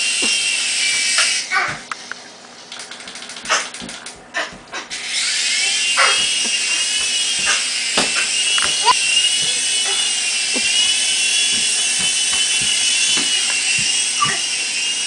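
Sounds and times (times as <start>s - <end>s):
toy helicopter motor whine: 0.0s - 1.6s, 4.9s - 15.0s.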